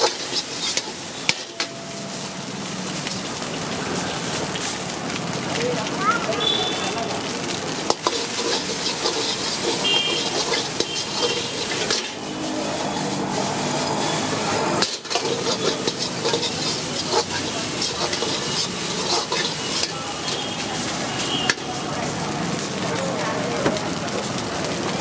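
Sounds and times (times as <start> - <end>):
ladle scraping a wok: 0.0 - 2.4, 7.8 - 21.8
frying sizzle: 0.0 - 25.0.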